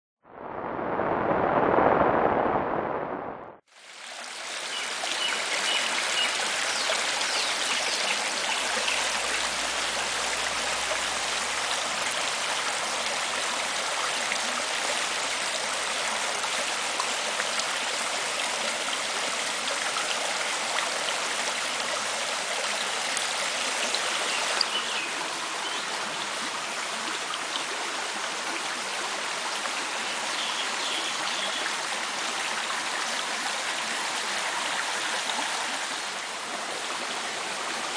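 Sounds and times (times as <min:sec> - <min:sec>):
stream rushing over stones: 0:00.4 - 0:37.9.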